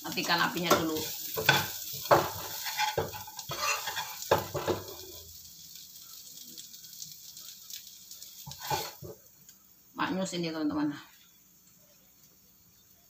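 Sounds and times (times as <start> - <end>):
food sizzling: 0.0 - 13.0
spatula scraping wok: 0.1 - 5.4, 8.1 - 9.3.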